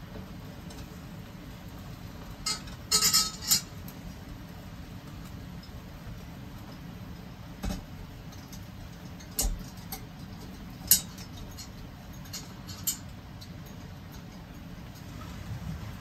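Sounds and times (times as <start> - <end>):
low steady background noise: 0.0 - 16.0.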